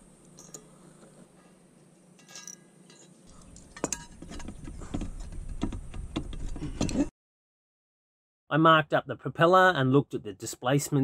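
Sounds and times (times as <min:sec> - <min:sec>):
metal tools clinking on propeller: 0:00.4 - 0:00.7, 0:02.2 - 0:04.5.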